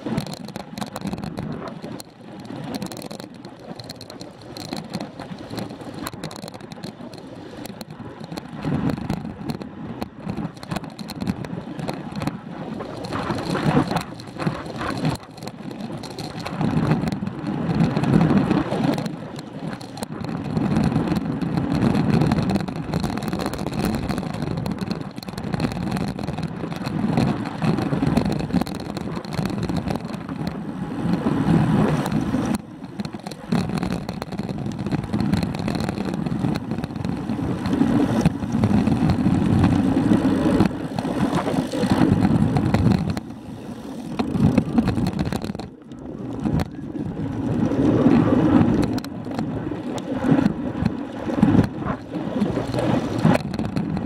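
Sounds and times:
wind buffeting microphone: 7.8 - 54.0
road noise: 35.0 - 45.9.

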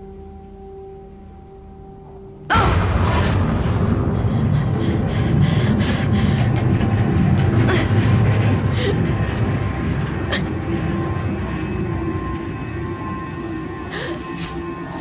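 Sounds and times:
sudden hit: 2.5 - 10.0
dense low rumble: 2.5 - 13.8.

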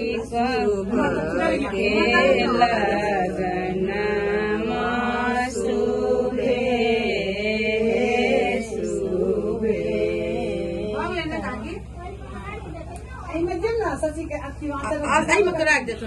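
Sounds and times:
voices chanting a song: 0.0 - 11.1.

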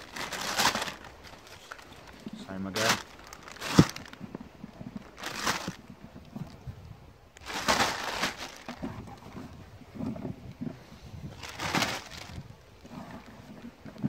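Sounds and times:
plastic bag crinkling: 0.0 - 5.9, 7.4 - 9.2, 11.4 - 12.4
hands rummaging in soil: 0.0 - 6.6, 7.4 - 10.4, 11.3 - 12.5.

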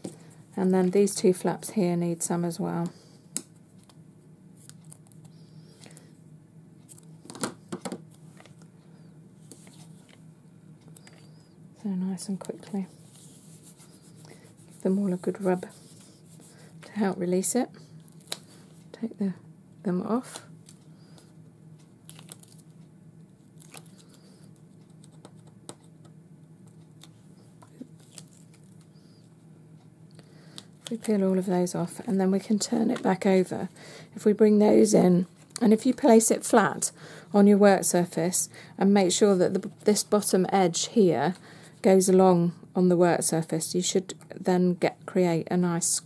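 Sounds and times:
tape liners peeling crackles: 22.0 - 22.8, 23.6 - 24.2, 27.8 - 28.9.

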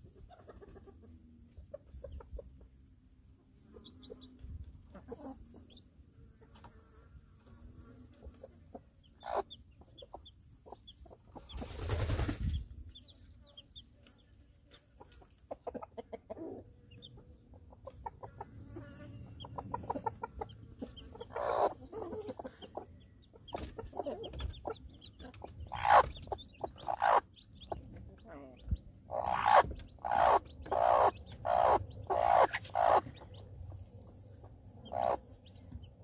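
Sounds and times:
chicks peeping: 0.0 - 6.8, 8.1 - 36.0
hens clucking: 0.0 - 6.8, 8.0 - 36.0
hen growling warning calls: 29.1 - 33.2, 34.8 - 35.2.

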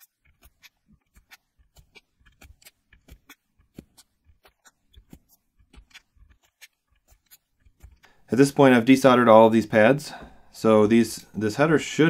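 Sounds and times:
small clicks and taps: 0.0 - 8.2.

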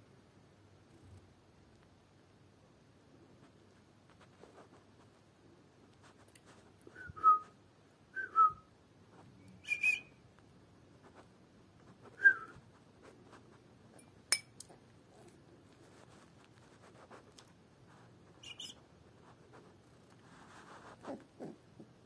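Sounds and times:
puppy squeaking: 18.4 - 18.8.

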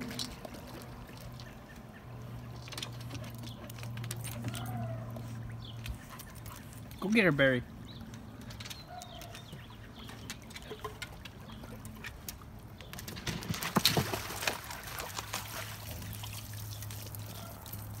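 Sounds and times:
pool water splashing: 10.7 - 18.0
water running off dog's coat: 14.0 - 18.0.

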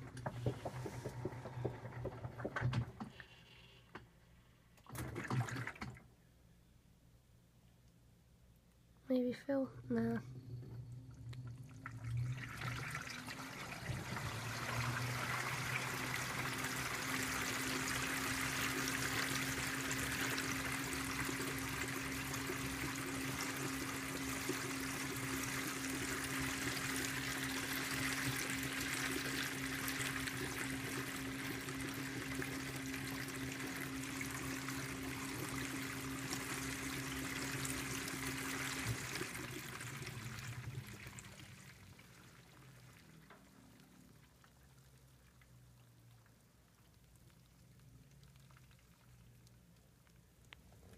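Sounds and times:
washer basket spinning: 0.0 - 3.2, 4.8 - 6.0, 11.6 - 43.6
motor hum: 0.0 - 4.1, 9.6 - 48.1
water pouring and splashing: 4.8 - 6.1, 10.8 - 50.9.

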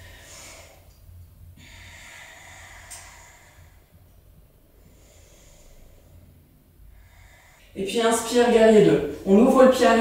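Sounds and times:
woman breathing slowly: 0.0 - 7.8
low steady hum: 0.0 - 10.0.

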